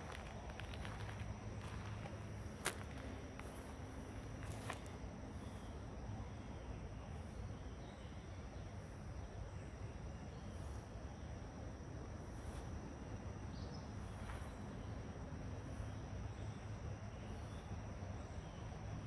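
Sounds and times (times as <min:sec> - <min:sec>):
bicycle tyres rolling on gravel: 0:00.0 - 0:05.0.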